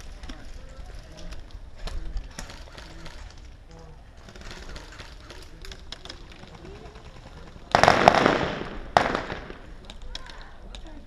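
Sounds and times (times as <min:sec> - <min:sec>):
loud airsoft gunfire burst: 0:07.7 - 0:09.7
sharp gun crack: 0:07.7 - 0:09.8.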